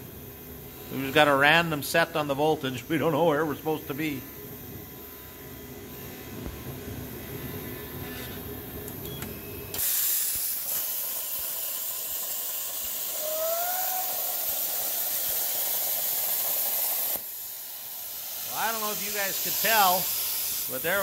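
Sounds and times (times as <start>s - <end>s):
plasma cutter hissing: 9.7s - 21.0s.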